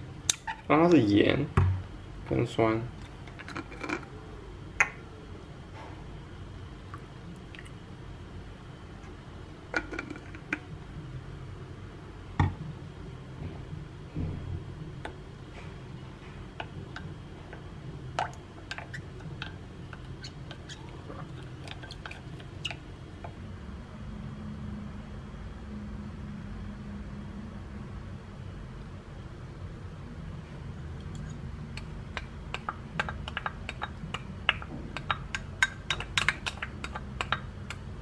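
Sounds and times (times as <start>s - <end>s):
low steady hum: 0.0s - 38.0s
spoon stirring wet dressing: 16.6s - 22.8s, 31.1s - 37.8s.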